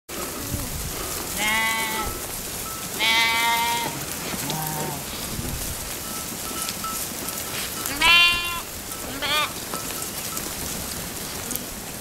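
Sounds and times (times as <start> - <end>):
hooves shuffling: 0.1 - 12.0
sheep bleating: 1.3 - 2.3, 3.0 - 5.3, 7.9 - 9.6.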